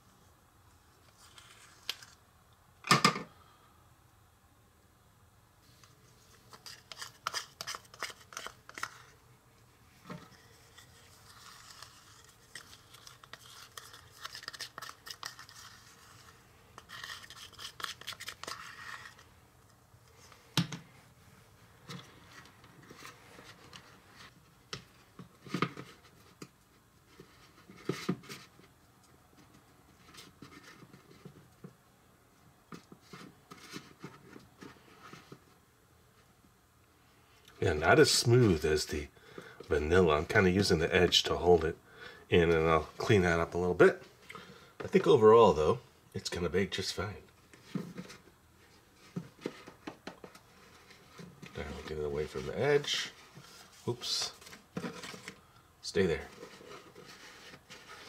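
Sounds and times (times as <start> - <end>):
spatula scraping batter: 6.4 - 9.1, 10.2 - 19.3.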